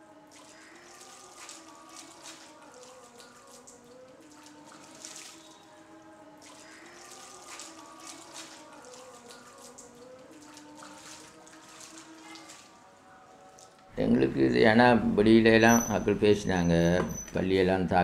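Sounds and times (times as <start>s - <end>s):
water splashing and trickling: 0.0s - 13.9s
soft sustained music tones: 0.0s - 18.0s.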